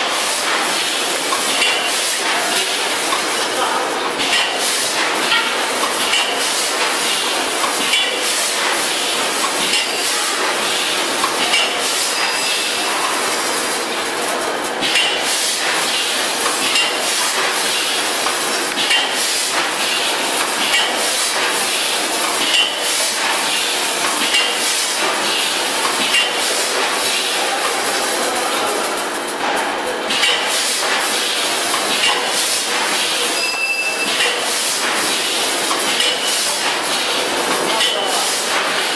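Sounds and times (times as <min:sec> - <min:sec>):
packing machine clatter: 0:00.0 - 0:38.9
sharp metallic clack: 0:11.2 - 0:12.5.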